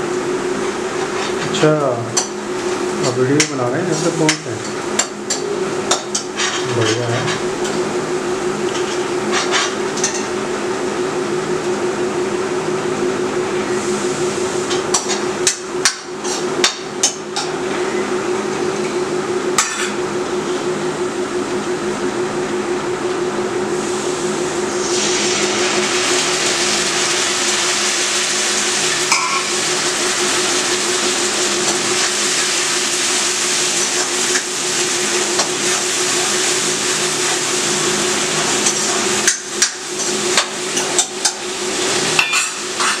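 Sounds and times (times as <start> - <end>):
kitchen appliance hum: 0.0 - 43.0
onions sizzling in a pan: 24.8 - 43.0.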